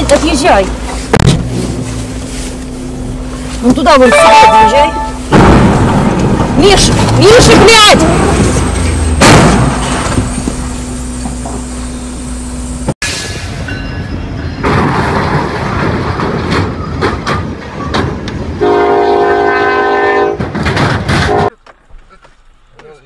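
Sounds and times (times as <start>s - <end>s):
noisy rumble: 0.0s - 13.0s
locomotive horn: 3.8s - 5.3s, 18.6s - 20.5s, 21.2s - 21.6s
train crashing into truck: 5.0s - 11.6s, 13.0s - 18.6s, 20.2s - 21.6s
clattering and banging: 14.6s - 18.2s, 20.4s - 21.6s.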